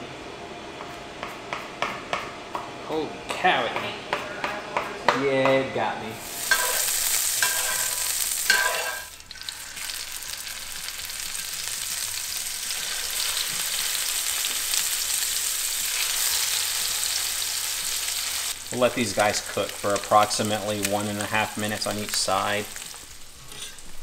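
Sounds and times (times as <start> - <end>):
fish sizzling in a skillet: 6.2 - 24.0.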